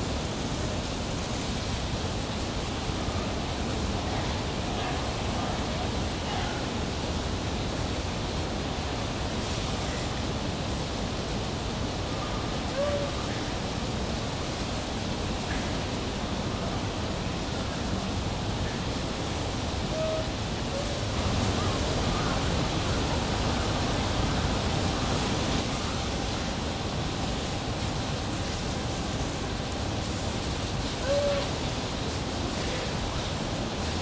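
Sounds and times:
steady rushing noise: 0.0 - 34.0
faint short high calls: 31.0 - 31.6.

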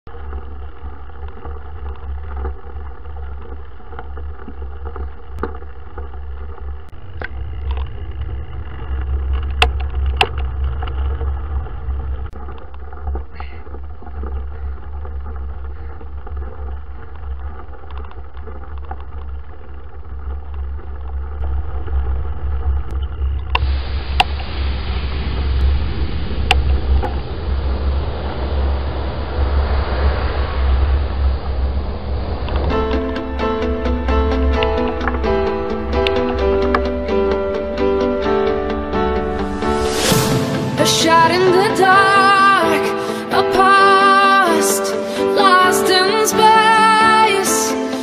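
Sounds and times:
wind rumbling on microphone: 0.0 - 48.0
sharp clicks and rattles: 0.1 - 24.4, 32.4 - 40.8.

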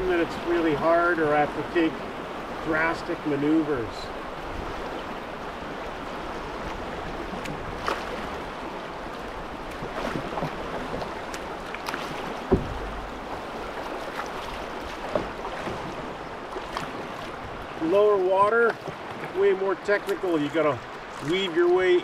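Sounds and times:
paddle splashing and knocking: 0.0 - 22.0
low thump: 12.4 - 13.1, 15.1 - 15.8.

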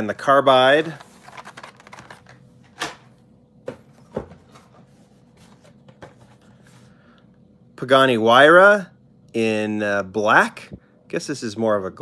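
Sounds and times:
knocks and rustles of plastic packs: 0.7 - 3.1.

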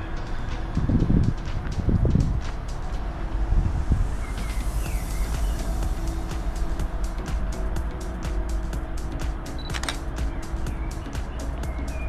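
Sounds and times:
wind buffeting microphone: 0.0 - 9.4
low outdoor background: 0.0 - 12.0.

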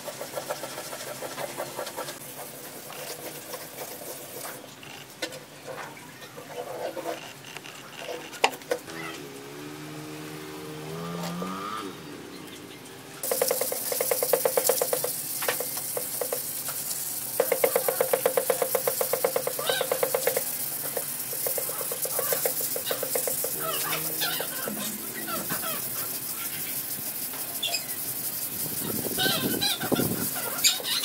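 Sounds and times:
sandpaper scratching: 0.0 - 5.0, 13.2 - 31.0
birds chirping: 8.8 - 14.2, 19.3 - 31.0.

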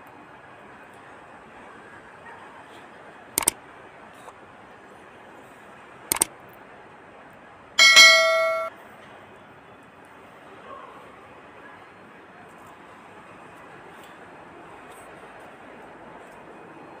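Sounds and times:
bell-like metallic ding: 7.8 - 8.7.

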